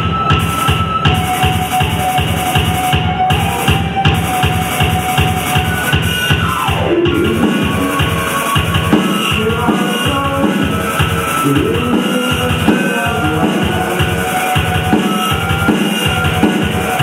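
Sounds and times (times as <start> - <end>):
tone sliding down in pitch: 0.0 - 10.0
band playing live: 0.0 - 17.0
steady drum beat: 0.0 - 17.0
wavering melody line: 0.0 - 17.0.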